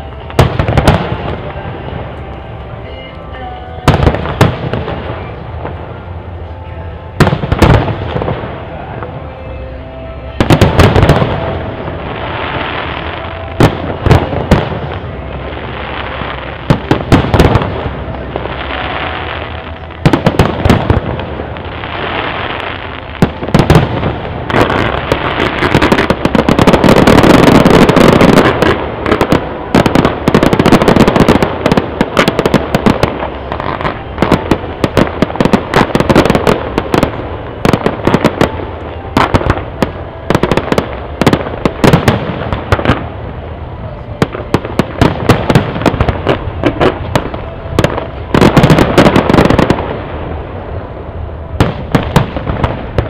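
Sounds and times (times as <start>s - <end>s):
rapid firework crackling: 10.4s - 43.2s.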